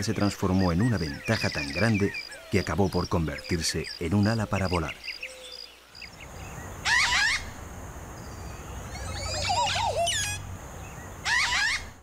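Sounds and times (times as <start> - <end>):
bird warbling: 0.0 - 7.6, 8.7 - 10.5, 11.2 - 12.0
background ambience: 0.0 - 12.0
faint high chirps: 8.3 - 10.4.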